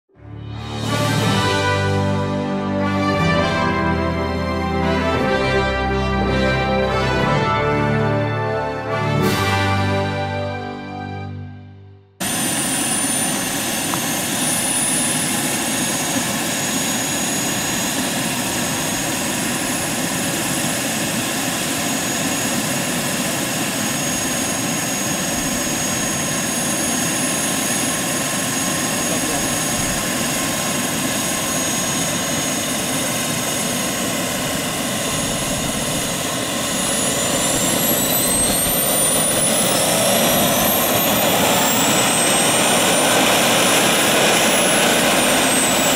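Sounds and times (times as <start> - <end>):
gas turbine whine: 12.2 - 45.9.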